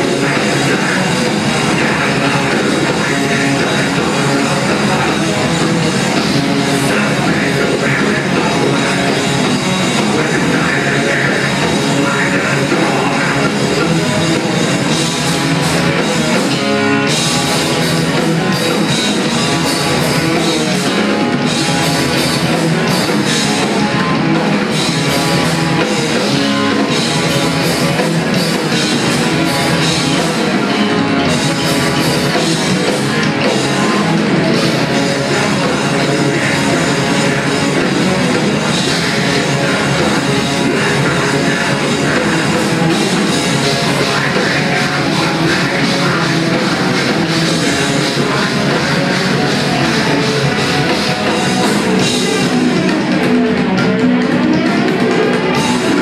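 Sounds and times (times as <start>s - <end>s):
drum kit: 0.0s - 56.0s
electric guitars: 0.0s - 56.0s.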